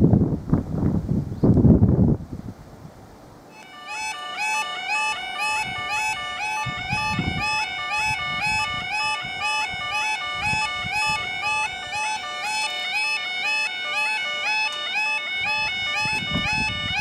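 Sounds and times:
level crossing alarms warbling: 3.5 - 17.0.

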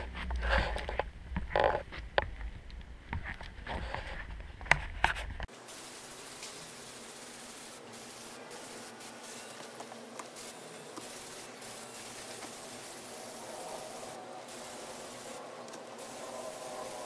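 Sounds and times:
spray paint can hissing: 5.5 - 17.0.

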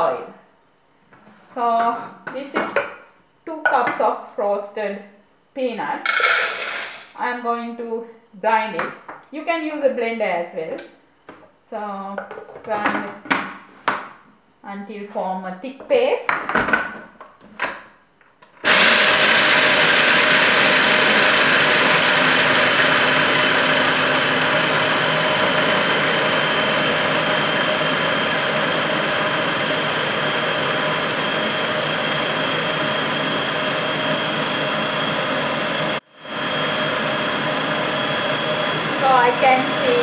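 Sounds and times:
food processor grinding: 6.1 - 7.1, 18.6 - 40.0.

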